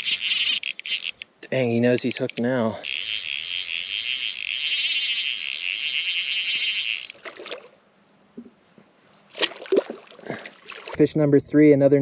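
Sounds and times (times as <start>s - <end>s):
fishing reel drag buzzing: 0.0s - 7.2s
faint water splashes: 7.1s - 7.8s, 9.0s - 11.1s.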